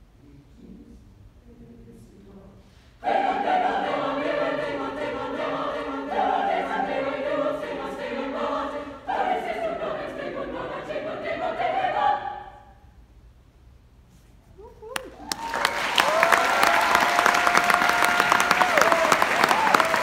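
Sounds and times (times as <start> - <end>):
choir singing a cappella: 3.0 - 12.9.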